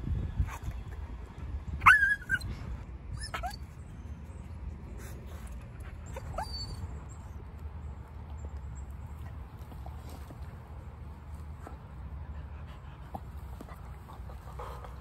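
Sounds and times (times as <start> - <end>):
dog whining: 1.8 - 2.5, 3.1 - 3.6, 6.1 - 6.9.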